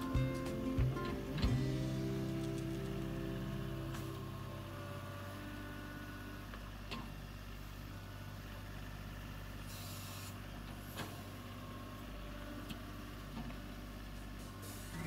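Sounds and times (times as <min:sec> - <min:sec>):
tractor diesel engine running: 0:00.0 - 0:15.0
brief hiss: 0:09.7 - 0:11.1.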